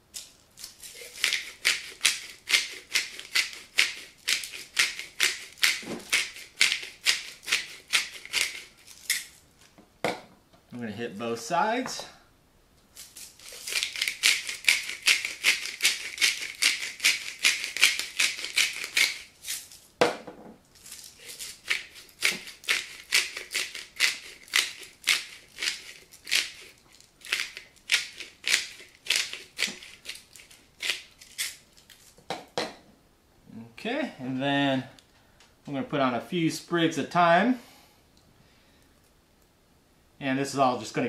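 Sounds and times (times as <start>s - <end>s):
spice mill grinding: 0.1s - 9.4s, 12.9s - 19.9s, 20.7s - 32.2s.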